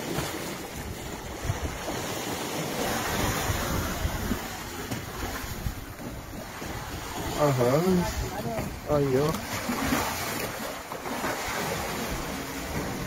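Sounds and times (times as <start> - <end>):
sea waves breaking on rocks: 0.0 - 13.0
wind buffeting microphone: 0.6 - 10.2.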